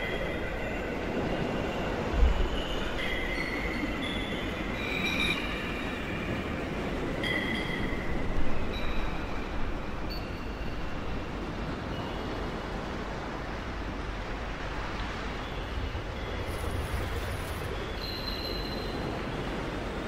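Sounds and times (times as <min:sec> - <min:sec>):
faint high-pitched squeals: 0:15.4 - 0:19.4.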